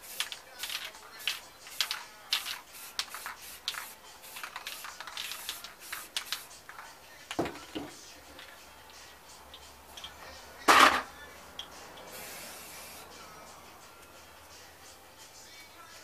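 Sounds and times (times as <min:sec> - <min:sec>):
spray cans knocking: 0:00.0 - 0:08.6, 0:10.0 - 0:11.1.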